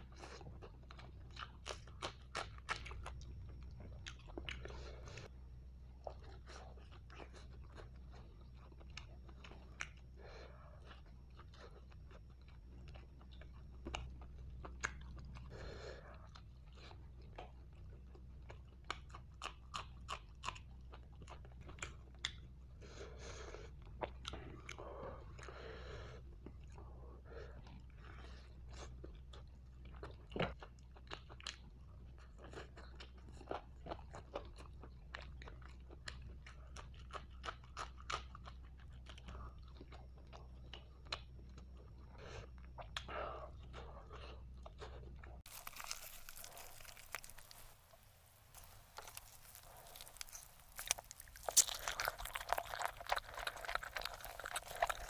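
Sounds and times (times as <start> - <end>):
chewing and biting chicken: 0.0 - 5.3, 6.0 - 22.6, 26.2 - 55.0
mouth clicks and crunches: 44.1 - 55.0.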